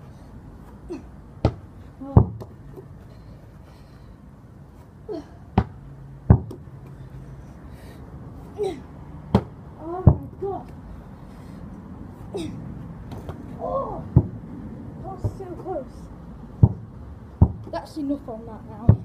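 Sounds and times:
basketball thudding: 1.4s - 2.6s, 5.6s - 6.6s, 9.3s - 10.4s, 16.6s - 17.7s.

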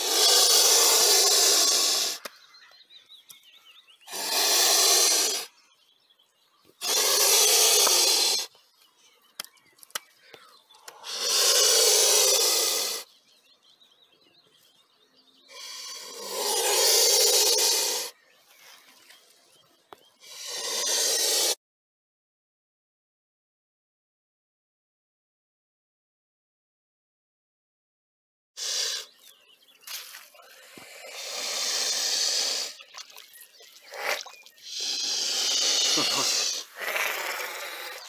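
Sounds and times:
swan hissing: 0.0s - 2.2s, 4.1s - 5.6s, 6.8s - 8.5s, 11.0s - 13.1s, 15.5s - 18.2s, 20.2s - 21.6s, 28.6s - 29.1s, 30.5s - 38.0s.

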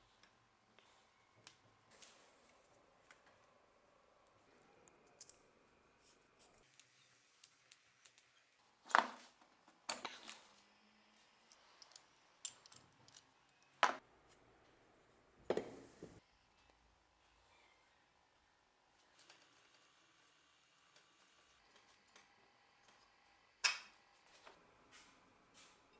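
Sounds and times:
metal tools clicking and scraping: 11.4s - 13.8s.

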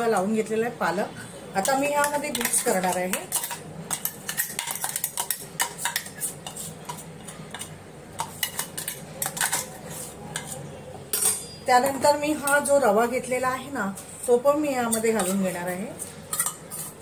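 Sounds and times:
metal spoon scraping steel jar: 1.6s - 7.4s, 14.2s - 17.0s.

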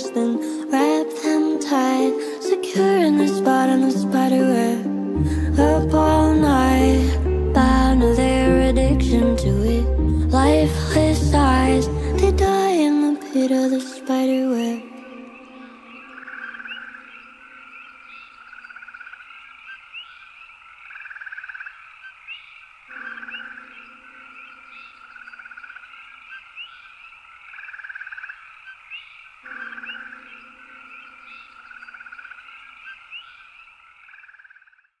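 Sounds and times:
frog-like trills: 14.9s - 35.0s.

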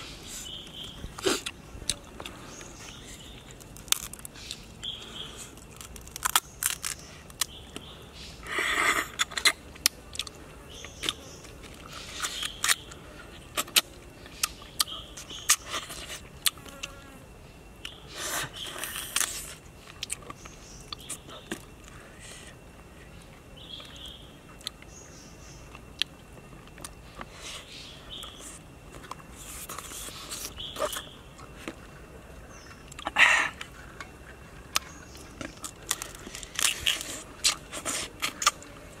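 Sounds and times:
crab shell cracking: 3.6s - 4.6s, 5.6s - 7.6s.

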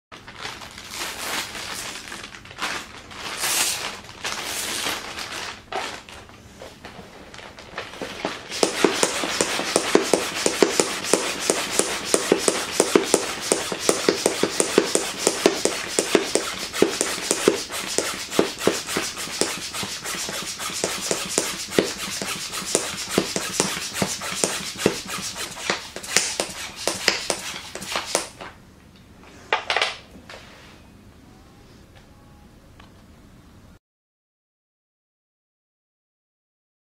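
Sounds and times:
plastic bag crinkling: 0.2s - 6.3s, 7.1s - 8.6s
hand pump puffing air: 8.5s - 28.4s.

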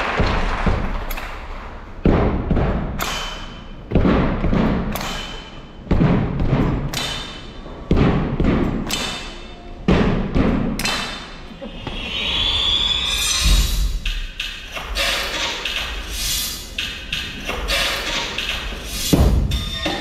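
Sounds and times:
deep percussion hits: 0.0s - 9.1s, 9.8s - 11.0s, 18.4s - 20.0s.

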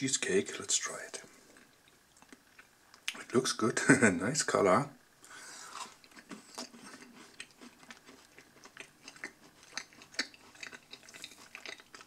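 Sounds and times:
person chewing: 1.5s - 3.2s, 5.3s - 12.0s.

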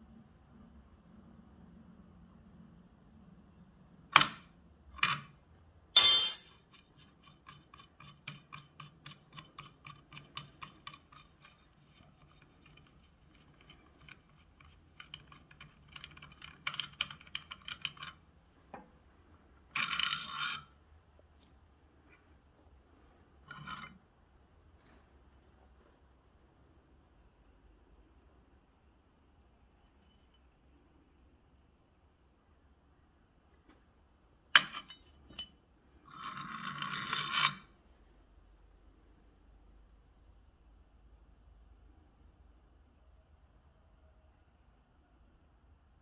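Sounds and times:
metal tools clanking: 6.0s - 6.5s.

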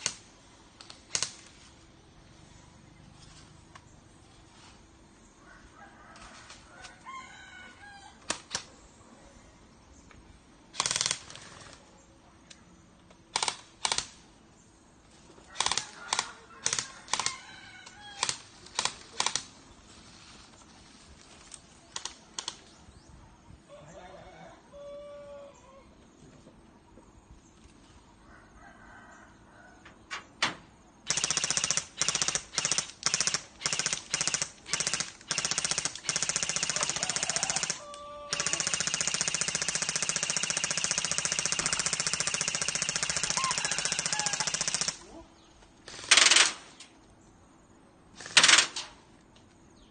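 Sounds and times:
rooster crowing: 5.4s - 8.2s, 15.5s - 18.2s, 23.7s - 25.9s, 28.2s - 30.0s, 36.6s - 38.9s, 43.2s - 44.7s
airsoft guns firing: 10.7s - 11.6s, 31.1s - 45.0s, 45.8s - 46.8s, 48.2s - 48.9s.

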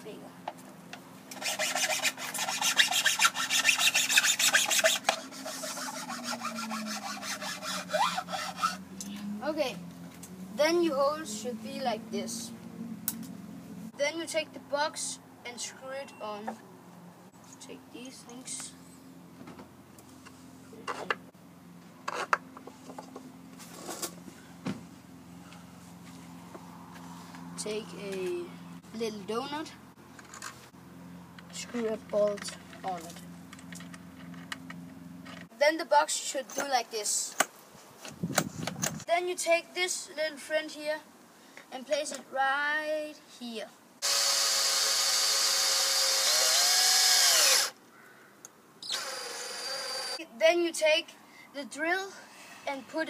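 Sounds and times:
hand tool rasping in wood: 1.3s - 8.8s, 44.0s - 47.7s.

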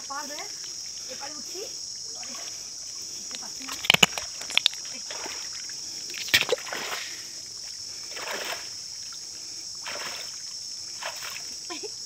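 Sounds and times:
water sloshing around wading person: 0.4s - 12.0s
sharp splashes: 3.7s - 8.8s, 9.8s - 11.6s.

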